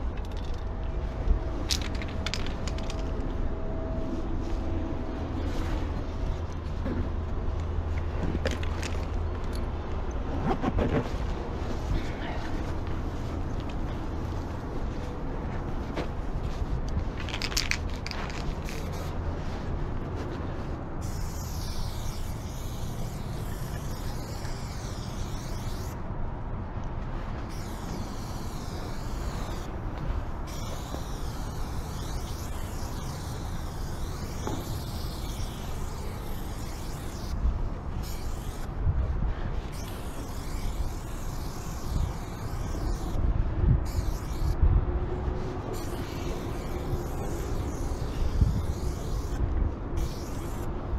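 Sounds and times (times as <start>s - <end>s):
spray paint can hissing: 0.2s - 0.6s, 1.6s - 3.2s, 17.2s - 19.1s, 21.0s - 26.0s, 27.4s - 37.4s, 38.0s - 38.7s, 39.7s - 43.2s, 43.8s - 44.6s, 45.7s - 50.7s.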